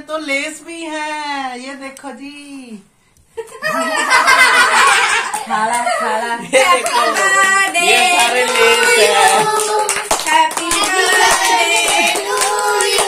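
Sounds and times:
voices singing: 6.4 - 13.0
hands clapping: 6.6 - 13.0.

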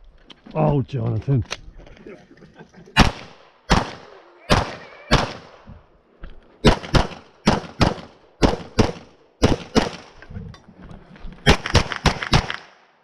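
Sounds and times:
pistol shots in quick pairs: 3.0 - 5.6, 6.6 - 10.2, 11.4 - 12.8.

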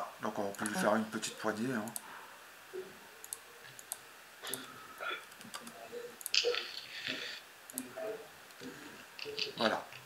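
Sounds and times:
computer mouse clicks: 1.8 - 2.1, 3.2 - 7.9.

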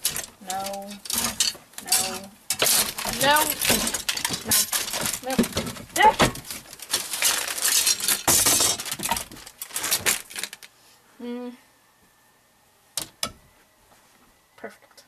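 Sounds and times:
clothes hangers clattering on rod: 0.0 - 10.6.

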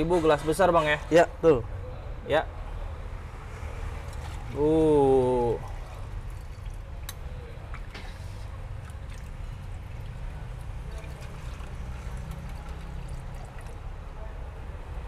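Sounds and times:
liquid trickling into a metal cup: 5.3 - 7.8, 8.6 - 13.9.

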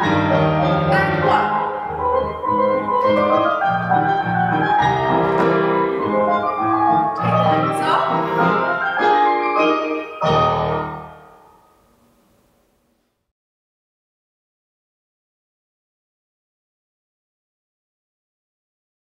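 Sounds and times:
solo classical piano: 0.0 - 12.6.

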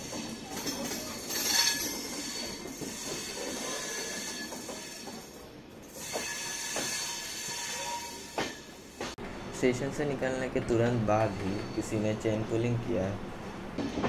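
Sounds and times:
train wheels rolling on tracks: 0.0 - 14.0
thin wheel squeal: 5.9 - 8.7, 11.1 - 12.2.

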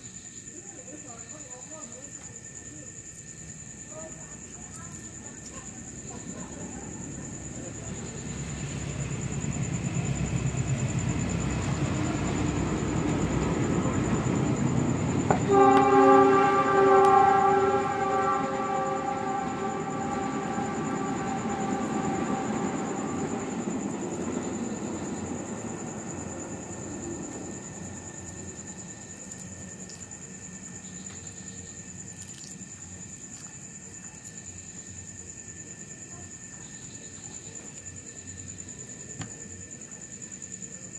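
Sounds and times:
night insects trilling: 0.0 - 40.9
heavy vehicle rumbling past: 6.5 - 29.1
loud horn chord: 15.3 - 23.5.

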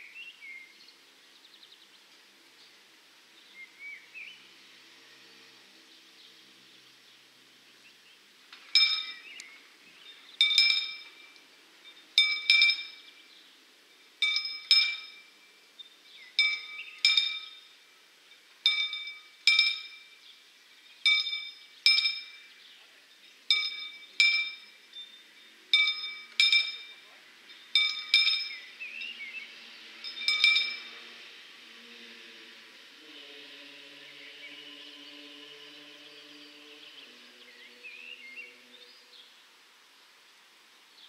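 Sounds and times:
birds chirping: 0.0 - 39.5
level-crossing warning bell: 8.7 - 9.4, 10.4 - 20.3, 21.0 - 31.3.

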